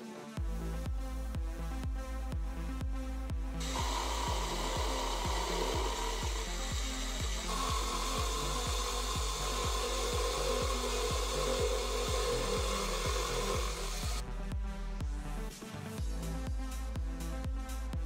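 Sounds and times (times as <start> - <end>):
backing track with regular beat: 0.4 - 18.0
milling machine cutting metal: 3.6 - 14.2.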